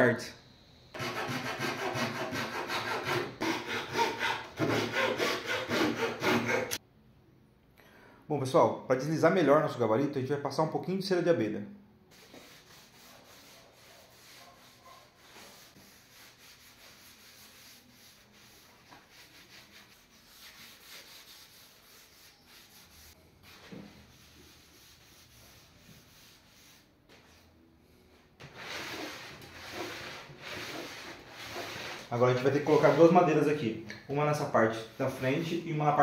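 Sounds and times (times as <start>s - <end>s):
cloth rubbing on board: 12.1s - 27.5s, 28.4s - 33.3s.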